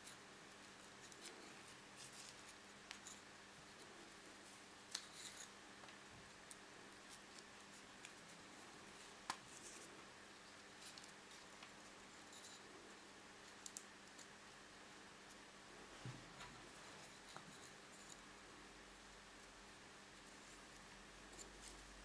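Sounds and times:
twine rustling: 0.0 - 14.3.

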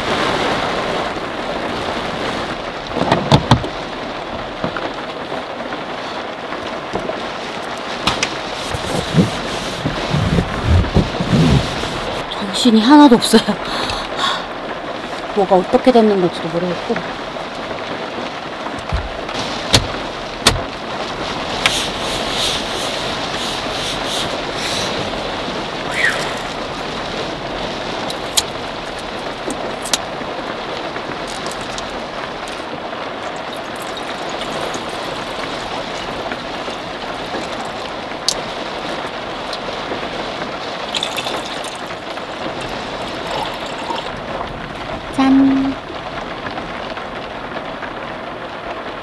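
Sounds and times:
heavy rain on car roof: 0.0 - 49.0
glass bottle and cup clinking: 33.3 - 36.2, 40.9 - 44.2.

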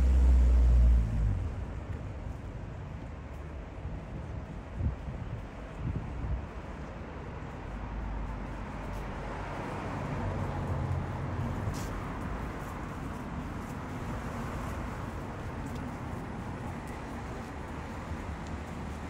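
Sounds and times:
rumble of passing vehicles: 0.0 - 19.0
traffic hiss: 7.3 - 19.0.

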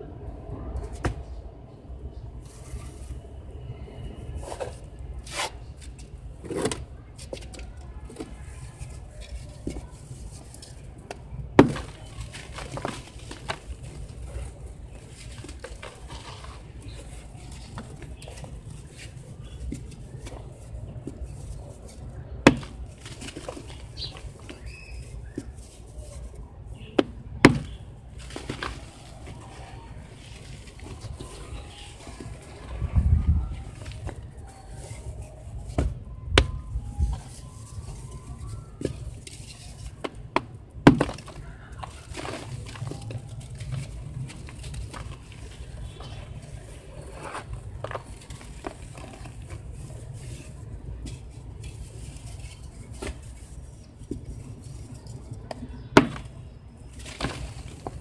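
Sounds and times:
cement chunks crushed by hand: 4.6 - 32.8, 33.5 - 58.0
blocks snapping: 11.0 - 14.5, 22.4 - 25.5, 27.0 - 29.8, 39.8 - 46.2, 55.4 - 56.4.

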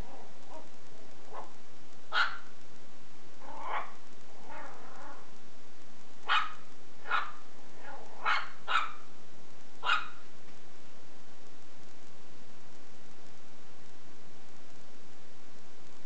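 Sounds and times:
puppy barking high: 1.3 - 2.5, 3.4 - 5.2, 6.2 - 9.1, 9.8 - 10.3.

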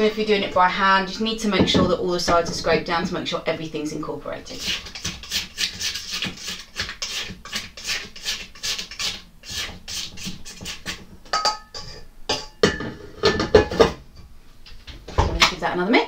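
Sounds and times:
spatula scraping metal bowl: 4.4 - 12.1.

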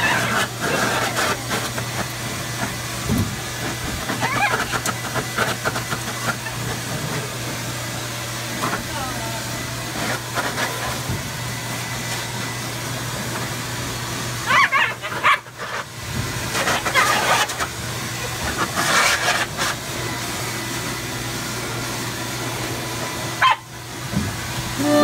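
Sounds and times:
pet blow dryer blowing: 0.0 - 25.0
dog vocal outbursts: 14.4 - 15.8, 23.4 - 23.7.

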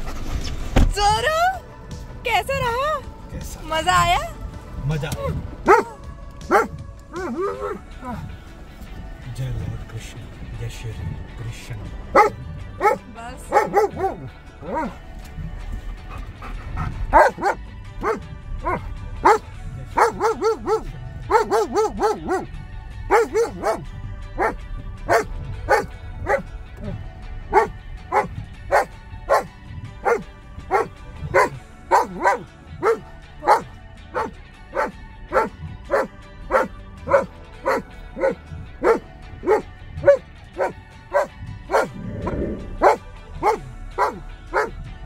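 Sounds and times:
dog barking and yipping: 5.6 - 8.2, 12.1 - 15.5, 16.1 - 42.0, 42.8 - 44.8.

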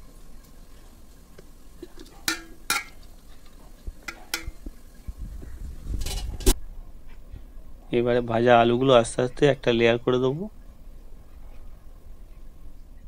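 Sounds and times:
metal spoon scraping metal pot: 4.1 - 4.6, 6.0 - 6.6.

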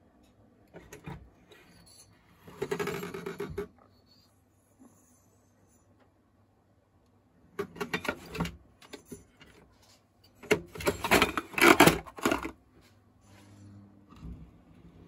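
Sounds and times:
hard parts clicking and rattling: 10.3 - 12.6.

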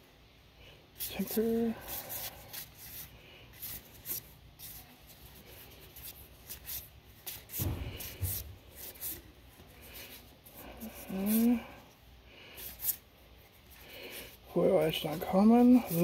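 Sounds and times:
cards sliding papery swishes: 1.0 - 11.6.

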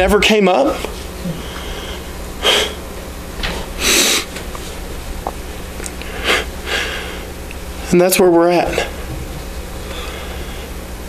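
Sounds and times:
steady low hum: 0.0 - 11.0
man breathing and sniffing: 0.9 - 2.9, 3.5 - 4.8, 6.0 - 7.4, 8.7 - 11.0.

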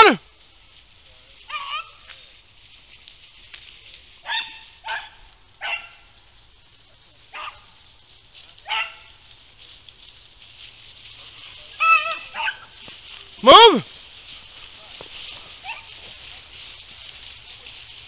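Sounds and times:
hounds baying: 1.5 - 2.0, 4.2 - 6.2, 7.2 - 7.8, 8.5 - 9.4, 11.0 - 18.0.

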